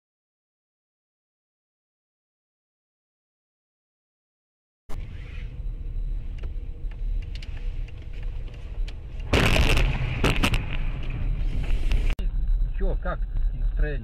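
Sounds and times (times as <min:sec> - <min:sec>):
engine and road rumble: 0:04.9 - 0:14.0.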